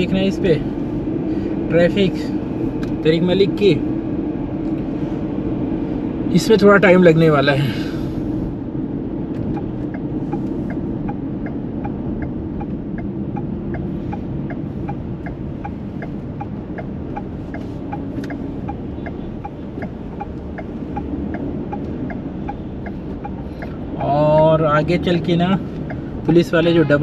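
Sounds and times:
engine and tyre hum: 0.0s - 27.0s
car turn signal ticking: 9.3s - 26.5s.

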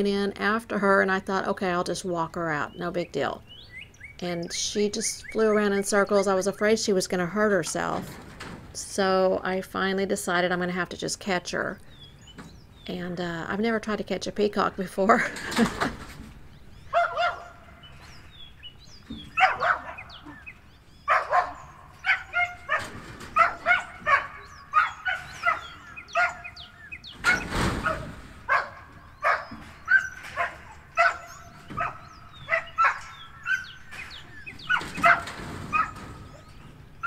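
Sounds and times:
rustling noise: 15.2s - 16.6s, 27.1s - 32.9s
animal barking calls: 16.8s - 18.3s, 19.2s - 37.0s.

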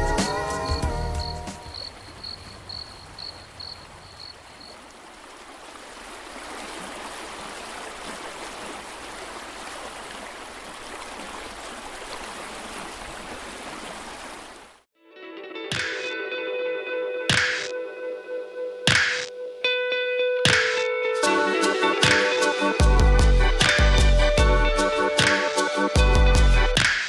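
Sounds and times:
water rushing: 1.4s - 14.9s.

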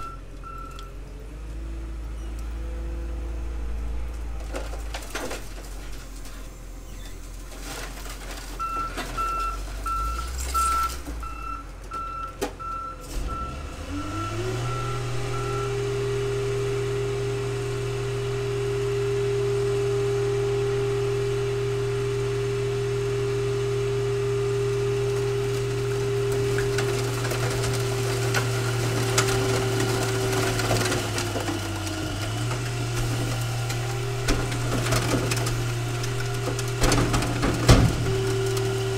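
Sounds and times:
reversing alarm beeping: 8.6s - 15.9s
car crusher power unit running: 12.5s - 38.9s.

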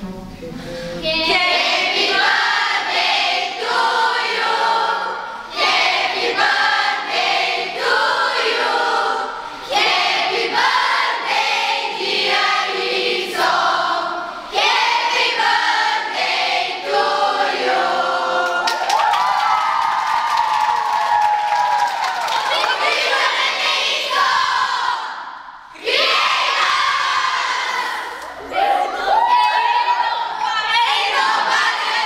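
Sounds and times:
children singing together: 1.1s - 18.7s, 22.6s - 29.0s, 30.4s - 32.0s
cheering and clapping: 18.4s - 24.6s, 26.6s - 30.9s.

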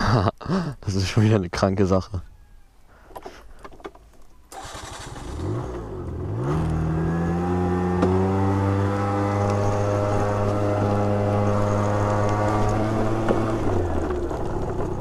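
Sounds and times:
scooter engine revving: 4.5s - 15.0s.

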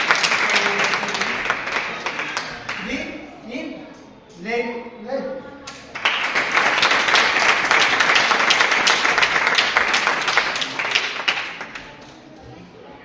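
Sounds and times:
group applauding: 0.0s - 2.9s, 5.7s - 12.1s.

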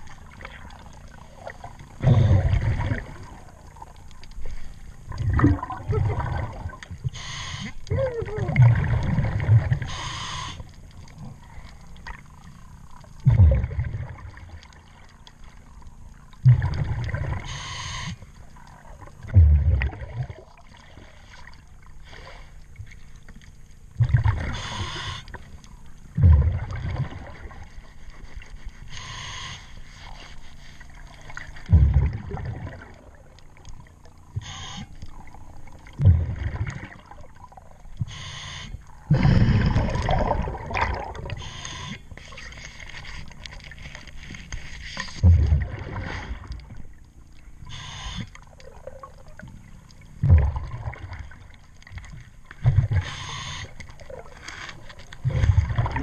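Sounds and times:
bubbling exhalation underwater: 2.0s - 3.5s, 5.1s - 7.0s, 7.9s - 9.9s, 13.2s - 14.4s, 16.4s - 17.4s, 19.2s - 20.6s, 26.2s - 27.6s, 31.7s - 33.2s, 39.0s - 41.4s, 45.2s - 46.5s, 50.2s - 51.4s, 55.2s - 56.0s
regulator hissing inhalation: 9.9s - 10.6s, 28.9s - 29.8s.

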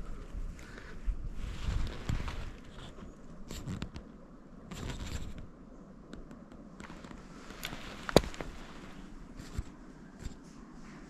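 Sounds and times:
sharp crack: 7.6s - 8.6s.

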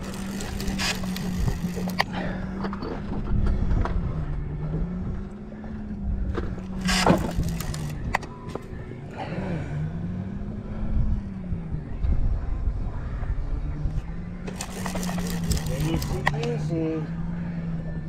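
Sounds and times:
fishing reel knocks: 0.0s - 2.0s
motor humming: 0.0s - 3.0s, 3.6s - 9.0s, 14.4s - 16.6s.

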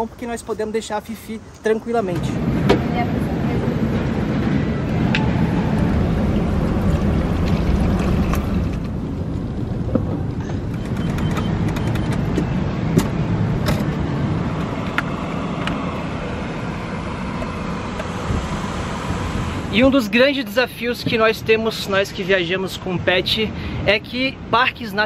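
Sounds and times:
ventilation fans rushing: 2.2s - 21.3s.

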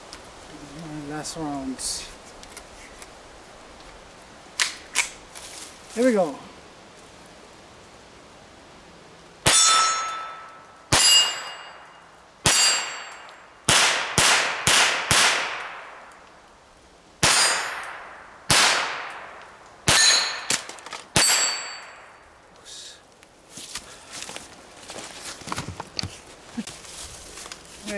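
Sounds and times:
pistol shots: 13.7s - 16.0s, 17.2s - 19.3s.

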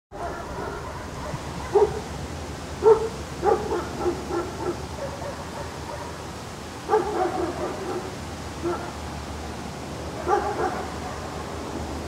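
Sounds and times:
dog barking in high yips: 0.2s - 2.0s, 2.8s - 6.2s, 10.2s - 11.3s.

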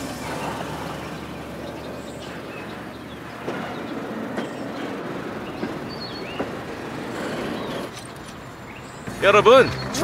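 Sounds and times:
train rumble: 0.0s - 8.0s
train wheels clacking on rails: 3.3s - 8.0s.

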